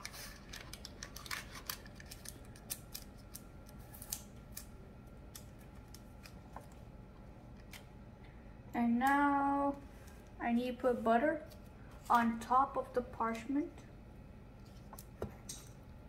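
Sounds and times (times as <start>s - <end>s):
paper crinkling and crackling: 0.0s - 4.7s.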